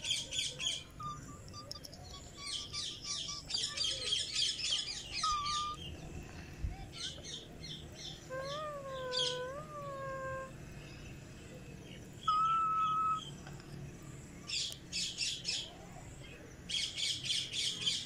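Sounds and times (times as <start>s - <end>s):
cockatiel chirping and whistling: 5.2s - 5.8s.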